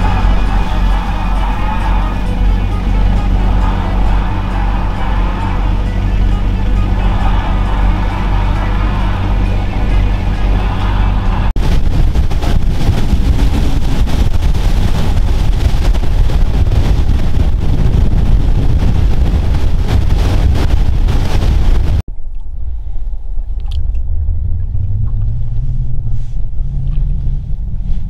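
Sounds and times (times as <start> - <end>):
boat motor running: 0.0 - 22.0
wind buffeting microphone: 0.0 - 28.0.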